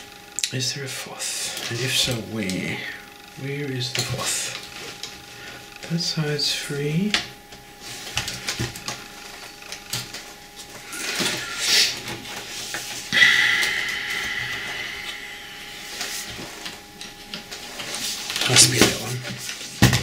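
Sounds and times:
steady high note: 10.8s - 18.5s.

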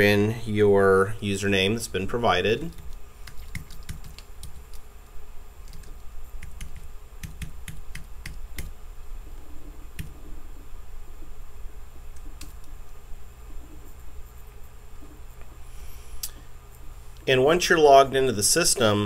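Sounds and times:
keyboard typing: 2.7s - 4.8s, 5.6s - 8.7s, 9.9s - 10.3s, 12.1s - 12.8s.

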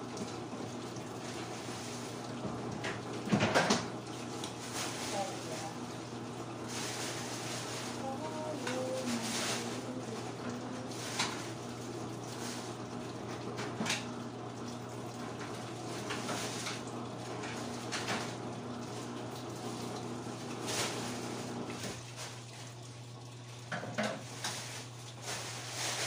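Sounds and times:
plastic bag rustling: 4.6s - 5.8s, 6.6s - 12.8s, 20.5s - 22.7s, 24.2s - 26.0s.

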